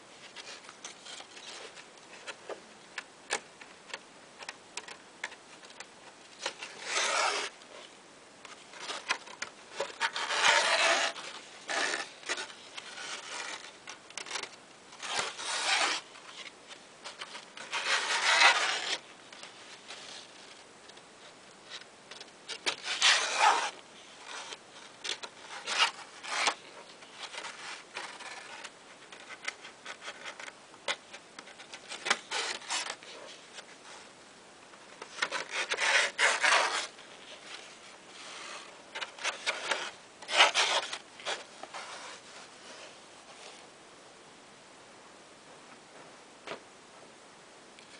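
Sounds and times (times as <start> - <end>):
card pages rustling: 5.6 - 7.9, 8.5 - 34.1, 34.8 - 43.7.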